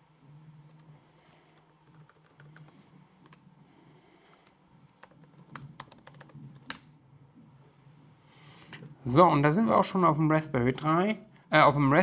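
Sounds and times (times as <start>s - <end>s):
faint low hum: 0.0s - 12.0s
keyboard typing: 0.7s - 3.4s, 4.4s - 6.9s.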